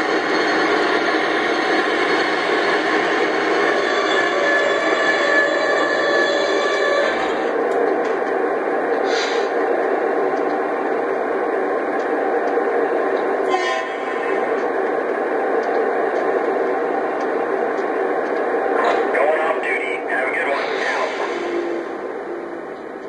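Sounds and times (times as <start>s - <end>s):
short hisses: 9.1s - 9.5s.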